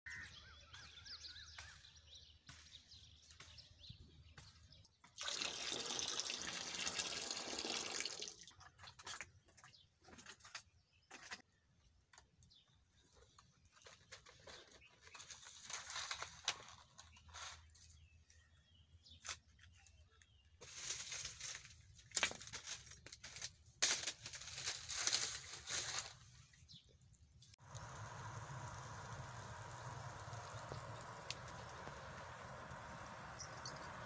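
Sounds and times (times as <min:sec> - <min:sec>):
fire pops and crackles: 0:27.5 - 0:34.0
sap boiling in a pan: 0:27.6 - 0:34.0.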